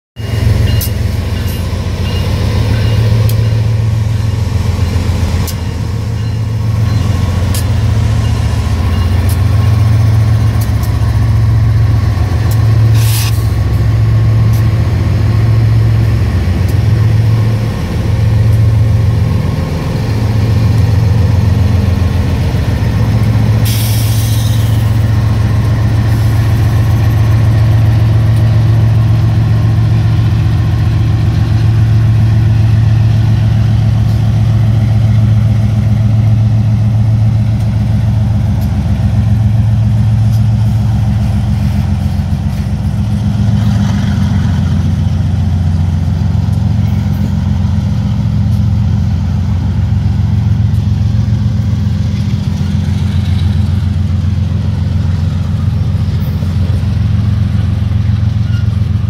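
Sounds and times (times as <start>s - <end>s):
diesel locomotive engines droning: 0.2s - 59.0s
air hiss: 23.7s - 24.8s.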